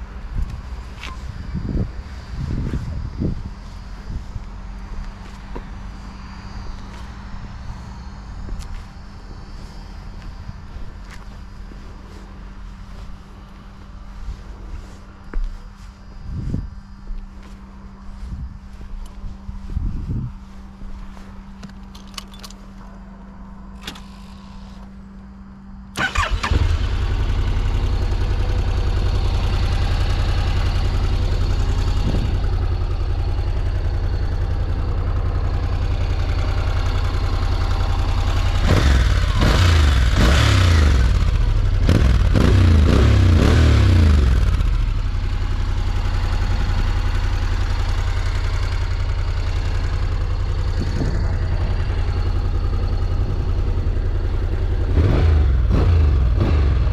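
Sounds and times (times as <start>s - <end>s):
motorcycle engine idling: 24.6s - 56.9s
motorcycle starter cranking: 26.0s - 27.2s
engine revving: 37.0s - 45.0s, 48.7s - 56.9s.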